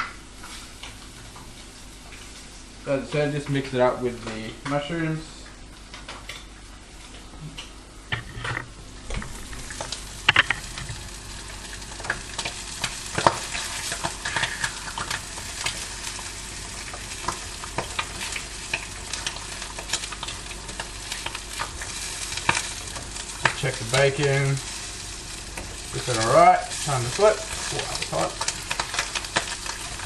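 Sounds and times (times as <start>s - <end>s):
food sizzling in a frying pan: 8.8s - 30.0s.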